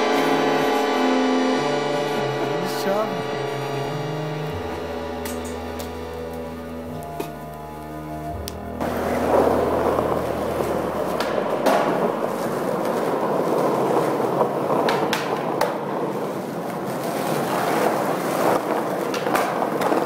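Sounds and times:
skateboard wheels rolling on asphalt: 5.8s - 20.0s
skateboard clacking on ground: 11.2s - 16.0s, 16.9s - 20.0s.

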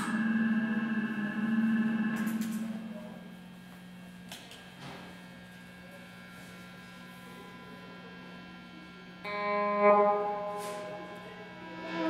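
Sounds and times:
electric guitar chord: 0.0s - 3.4s, 9.3s - 12.0s
faint low hum: 0.0s - 4.2s.

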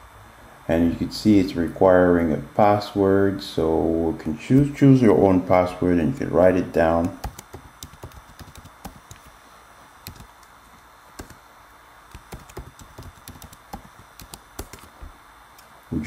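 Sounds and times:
computer keyboard typing: 7.0s - 9.3s, 10.0s - 10.4s, 11.2s - 11.4s, 12.1s - 15.1s.

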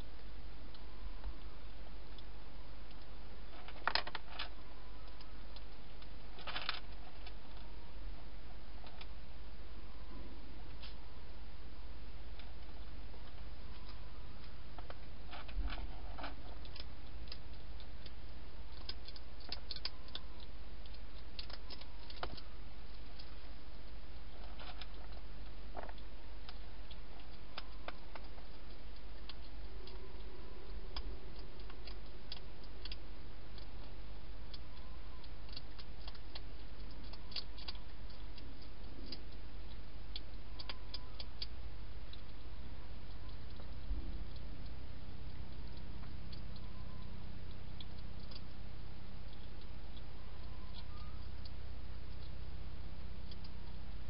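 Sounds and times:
steady low hum: 0.0s - 54.0s
hedgehog chewing crunchy clicks: 12.3s - 54.0s.

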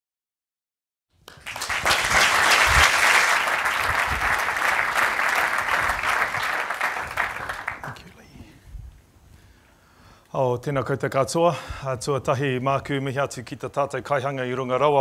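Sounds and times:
audience applause: 1.3s - 8.1s.

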